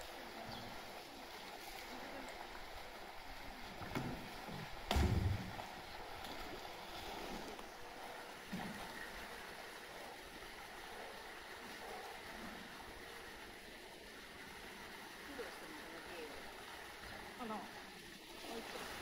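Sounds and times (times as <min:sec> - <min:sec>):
water sloshing: 0:00.0 - 0:19.0
soft low thump: 0:04.9 - 0:05.6.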